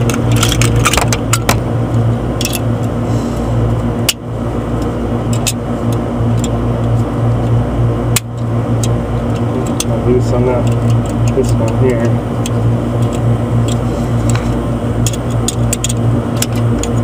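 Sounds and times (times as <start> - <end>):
tool clicks and knocks: 0.0 - 1.6
machine hum: 0.0 - 17.0.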